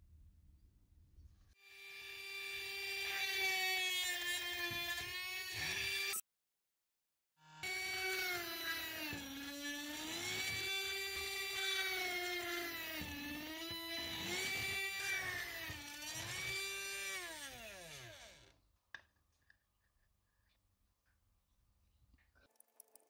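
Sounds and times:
small electric motor whining: 0:01.6 - 0:06.2, 0:07.4 - 0:18.6.

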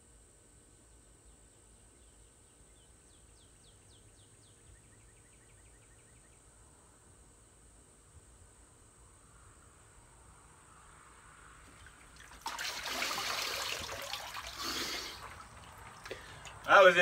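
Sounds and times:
distant songbird: 0:00.7 - 0:06.8.

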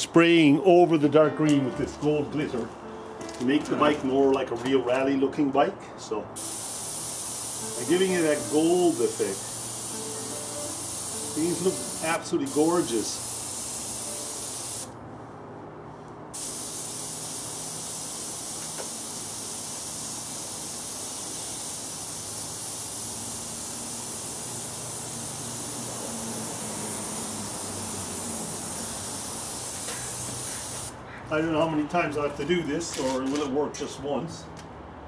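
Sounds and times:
paint spray gun hissing: 0:06.4 - 0:15.0, 0:16.4 - 0:31.0.

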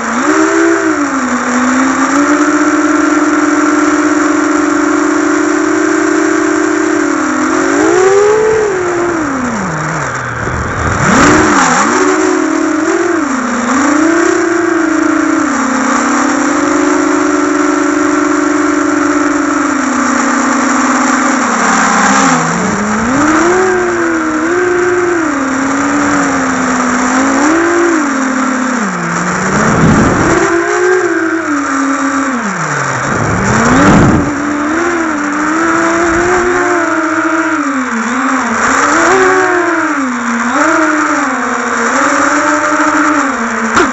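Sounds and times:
drone motors whining: 0:00.0 - 0:43.9
rushing wind noise: 0:07.7 - 0:12.2, 0:29.0 - 0:37.6.

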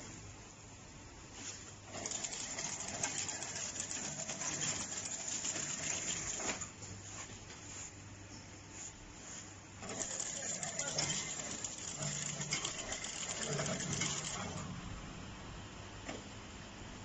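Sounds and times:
rapid clatter of clicks: 0:02.0 - 0:06.6, 0:09.8 - 0:14.7
machinery low hum: 0:09.8 - 0:17.0.

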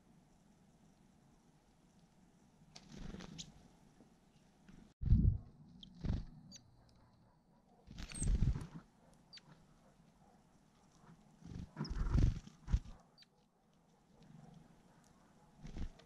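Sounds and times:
low rumbling buffets: 0:05.0 - 0:06.5.

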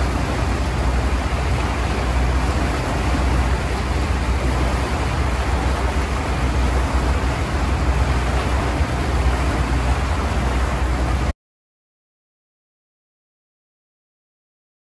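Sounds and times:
boat engine rumble: 0:00.0 - 0:11.4
water churning in wake: 0:00.0 - 0:11.4.

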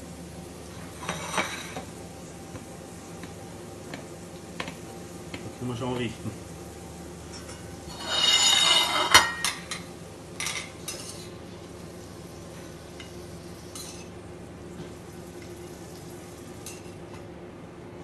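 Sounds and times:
metal tongs scraping a pan: 0:07.4 - 0:09.8.

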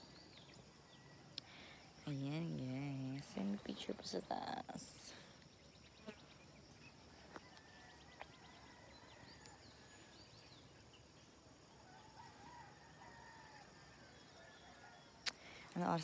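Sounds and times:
distant rooster crowing: 0:07.2 - 0:09.8, 0:11.8 - 0:15.2.

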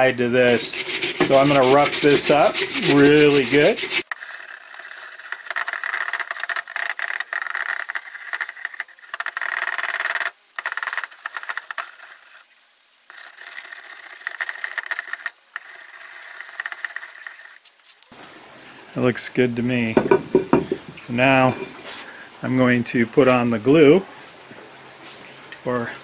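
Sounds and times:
sandpaper scrubbing porcelain: 0:00.5 - 0:12.4, 0:13.1 - 0:18.0.

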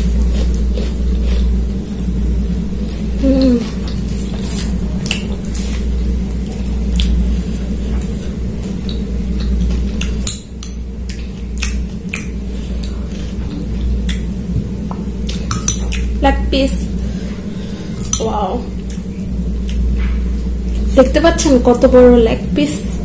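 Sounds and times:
chewing: 0:00.0 - 0:14.3, 0:18.8 - 0:20.8
low hum: 0:00.0 - 0:23.0.

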